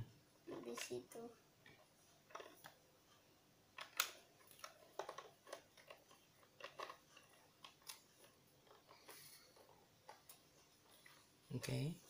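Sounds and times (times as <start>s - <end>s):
plastic toy parts clicking: 3.8s - 8.0s.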